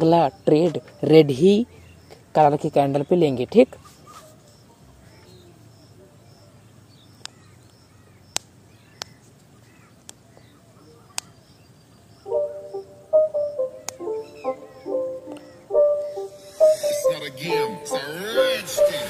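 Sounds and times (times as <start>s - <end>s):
faint bird chirps: 2.9s - 17.7s
plucked string tune: 12.3s - 19.0s
sharp clicks: 13.8s - 14.0s.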